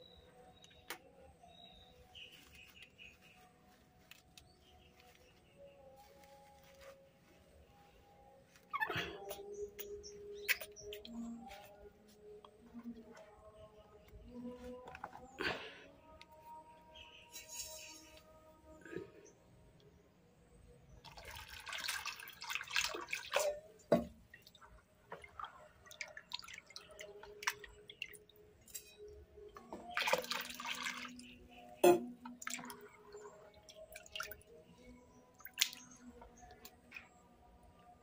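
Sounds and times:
water pouring into basin: 0:21.0 - 0:28.4, 0:29.8 - 0:31.4, 0:32.2 - 0:34.6, 0:35.3 - 0:36.5
water dripping: 0:21.0 - 0:37.1.

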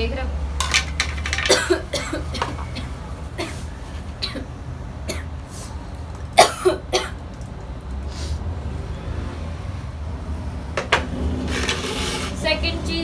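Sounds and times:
woman coughing: 0:01.5 - 0:03.6, 0:06.4 - 0:07.2.

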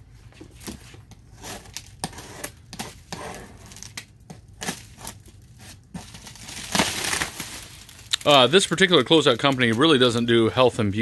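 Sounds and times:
plastic wrap crackling: 0:03.7 - 0:10.4.

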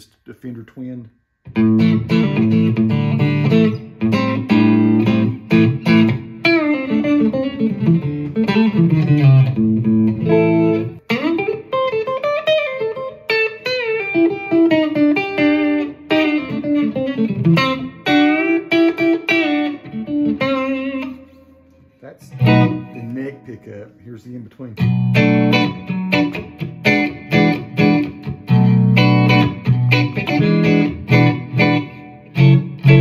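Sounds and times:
electric guitar playing: 0:01.5 - 0:33.0.

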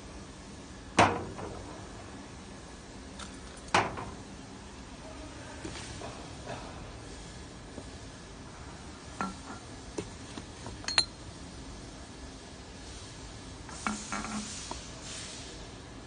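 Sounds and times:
glass bottles clinking: 0:09.2 - 0:09.6, 0:10.8 - 0:11.1.

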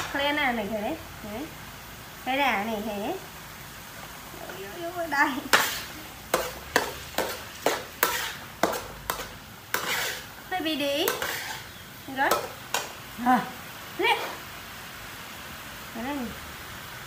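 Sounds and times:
faint sizzle: 0:00.0 - 0:17.0
metal ladle scraping a wok: 0:05.5 - 0:10.4, 0:11.0 - 0:12.9.

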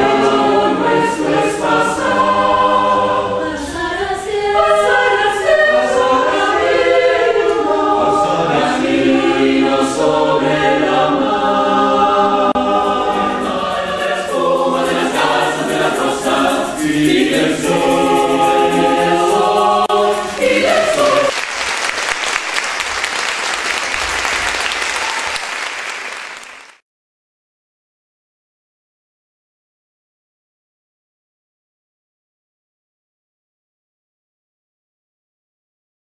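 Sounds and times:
mixed choir singing: 0:00.0 - 0:21.4
audience applause: 0:20.3 - 0:26.8.

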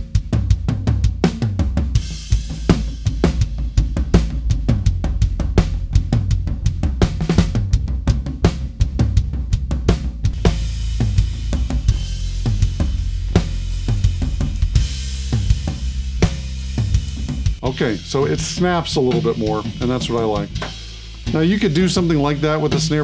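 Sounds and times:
drum kit beat: 0:00.0 - 0:23.0
cymbals washing: 0:10.3 - 0:23.0.

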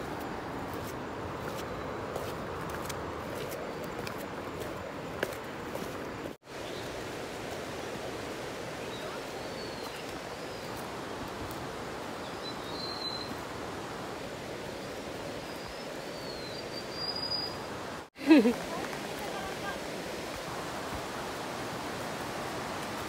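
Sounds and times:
flowing stream water: 0:00.0 - 0:23.0
faint bird chirps: 0:12.2 - 0:13.4, 0:15.4 - 0:17.7.

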